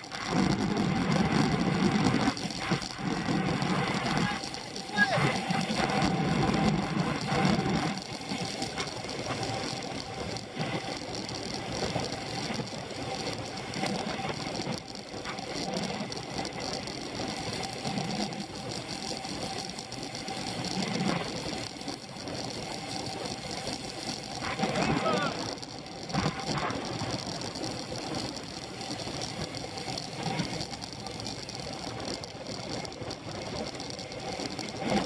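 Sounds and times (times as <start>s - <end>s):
bicycle rattle and whir: 0.0s - 35.0s
wind and road noise: 0.0s - 35.0s.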